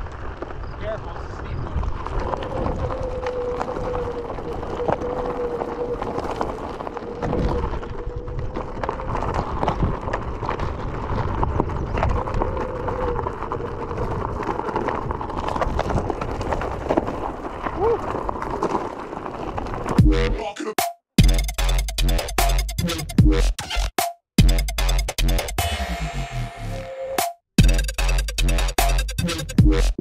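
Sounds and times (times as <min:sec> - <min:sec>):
tyre crunching over gravel: 0:00.0 - 0:20.2.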